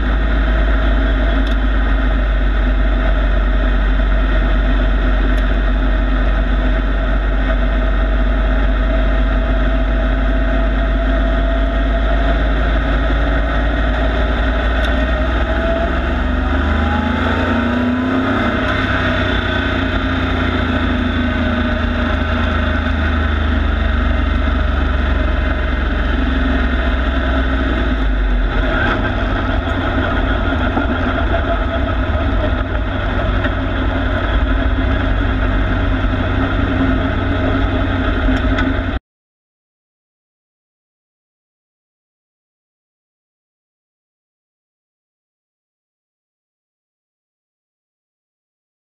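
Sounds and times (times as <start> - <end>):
race truck engine running: 0.0 - 39.0
road and wind noise: 0.0 - 39.0.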